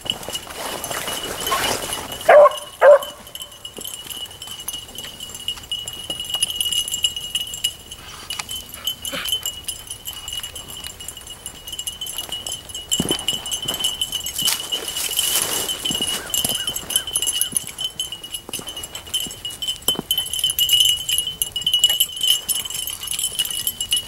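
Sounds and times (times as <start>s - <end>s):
dog barking: 2.3s - 3.4s.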